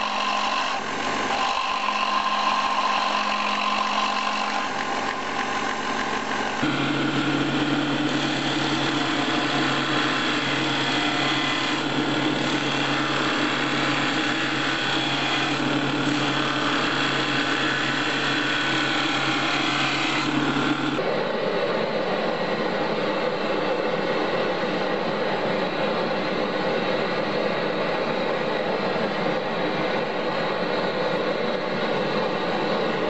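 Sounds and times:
belt grinder hum: 0.0 - 21.0.

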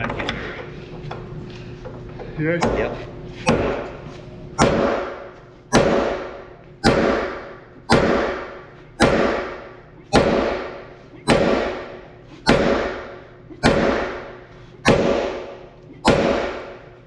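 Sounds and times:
sledgehammer striking metal: 4.6 - 16.9.

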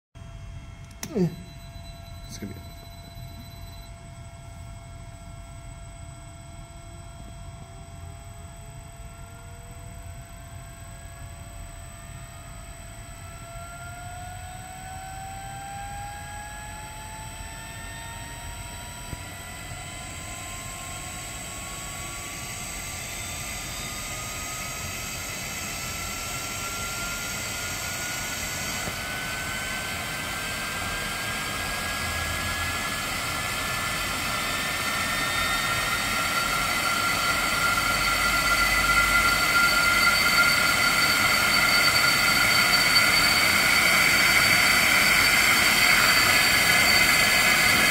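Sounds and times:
motor whine rising in pitch: 0.8 - 4.8, 9.2 - 47.9
blower rushing noise: 21.7 - 47.9.

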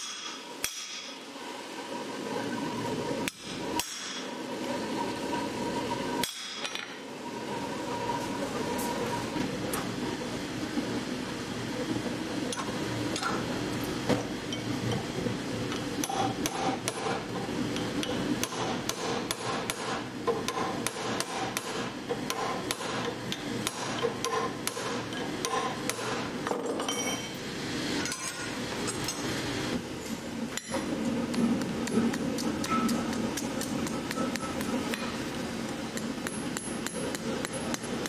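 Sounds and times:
hammer striking hot steel on anvil: 0.0 - 1.2, 3.2 - 4.3, 6.2 - 7.0, 16.0 - 17.2, 18.0 - 27.4, 31.8 - 35.2, 35.9 - 38.0.

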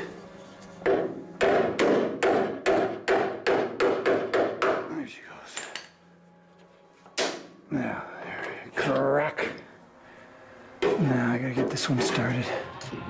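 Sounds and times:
hammer striking chisel on metal: 0.8 - 4.9.

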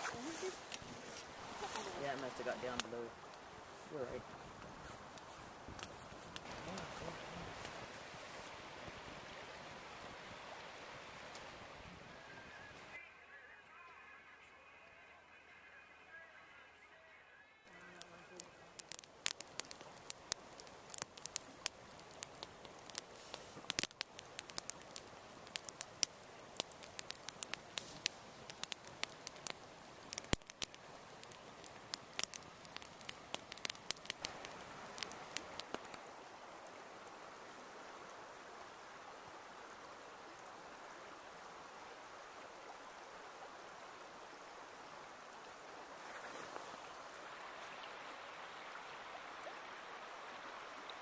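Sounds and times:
campfire crackling and popping: 0.0 - 13.0, 17.6 - 37.3
shallow river flowing: 0.0 - 17.0, 17.7 - 51.0.

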